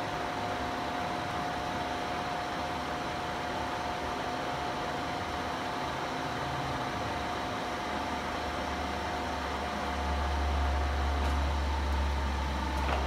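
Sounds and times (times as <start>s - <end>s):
milling machine running: 7.1s - 13.0s.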